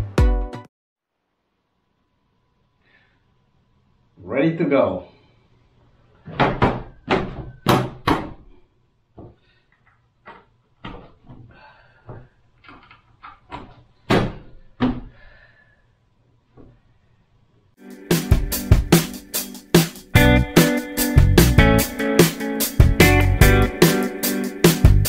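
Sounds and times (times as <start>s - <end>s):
plastic hood knocking: 6.3s - 8.4s.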